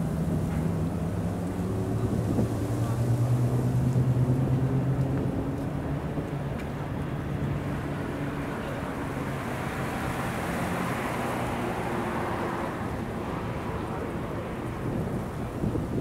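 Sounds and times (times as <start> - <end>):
wind noise on microphone: 0.0 - 5.4, 14.6 - 16.0
low engine drone: 0.0 - 10.1.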